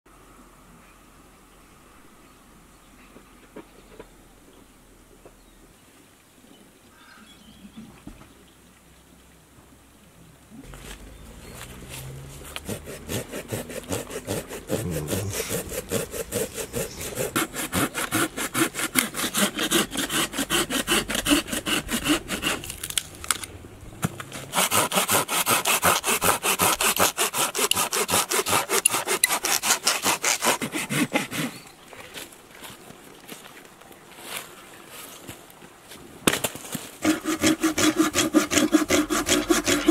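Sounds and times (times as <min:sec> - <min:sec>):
hand saw cutting wood: 0:10.8 - 0:23.5, 0:24.1 - 0:31.7, 0:37.0 - 0:39.9.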